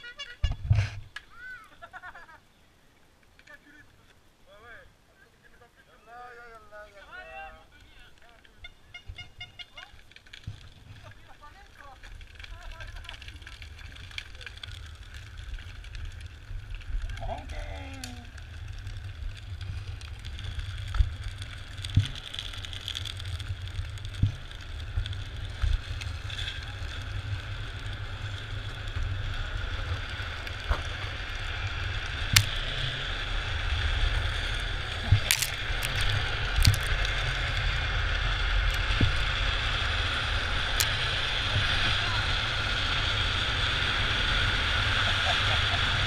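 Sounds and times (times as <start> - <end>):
trike wheels sliding on asphalt: 0.0 - 46.0
wind rumble on microphone: 12.0 - 46.0.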